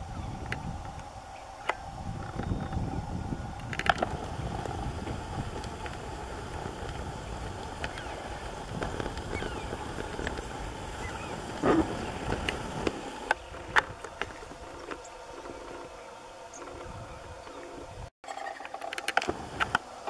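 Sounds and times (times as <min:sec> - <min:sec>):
wind rumble on microphone: 0:00.0 - 0:18.1, 0:19.2 - 0:19.8
cluster of clicks: 0:05.6 - 0:15.9.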